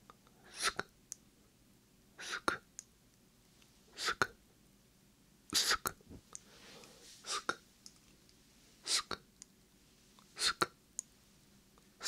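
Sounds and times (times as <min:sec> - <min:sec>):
whispered breathy hisses: 0:00.4 - 0:00.9, 0:02.2 - 0:02.6, 0:03.9 - 0:04.3, 0:05.6 - 0:07.6, 0:08.8 - 0:09.2, 0:10.3 - 0:10.7.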